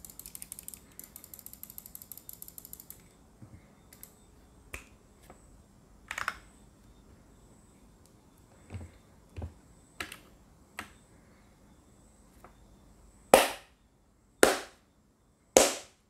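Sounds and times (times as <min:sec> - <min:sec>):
mouse scroll wheel ratcheting: 0:00.0 - 0:03.0.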